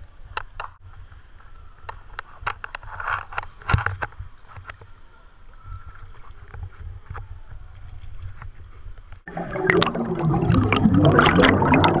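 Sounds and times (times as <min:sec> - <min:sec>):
underwater air bubbling: 0:09.3 - 0:12.0.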